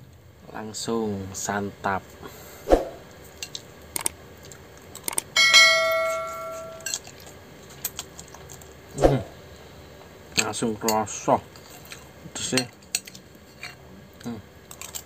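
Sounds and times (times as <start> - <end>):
dish ringing bell-like: 5.4 - 6.9
cutlery clinking on dish: 5.4 - 7.2.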